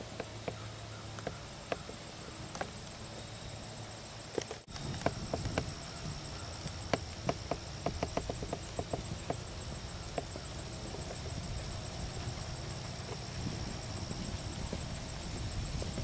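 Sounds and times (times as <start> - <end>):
crickets trilling: 0.0 - 16.0
horse hoofbeats on sand: 4.9 - 16.0.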